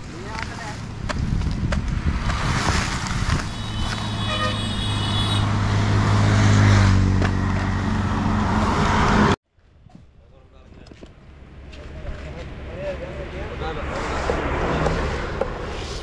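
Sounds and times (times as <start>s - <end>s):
vehicle engine humming: 0.0s - 9.4s
high steady horn tone: 3.4s - 5.6s.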